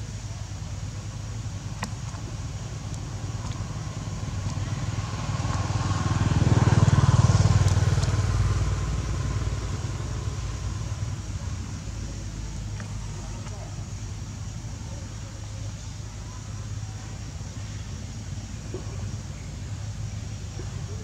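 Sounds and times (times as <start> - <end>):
vehicle engine drone passing by: 1.1 - 15.6.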